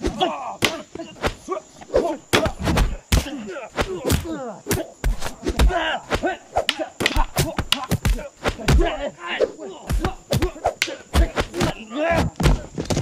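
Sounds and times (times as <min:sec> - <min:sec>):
fighters grunting and yelling: 0:00.0 - 0:12.8
weapons hitting: 0:06.6 - 0:08.9.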